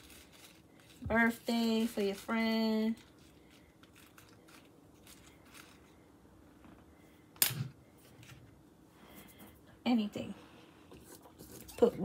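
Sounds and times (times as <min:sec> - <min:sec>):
tissue paper rustling: 0:00.0 - 0:06.0.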